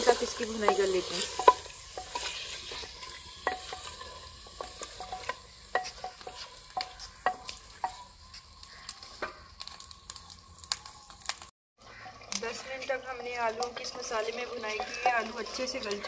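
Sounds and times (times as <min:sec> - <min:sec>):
faint sizzle: 0:00.0 - 0:16.0
wooden spoon knocking clay pot: 0:00.2 - 0:08.1.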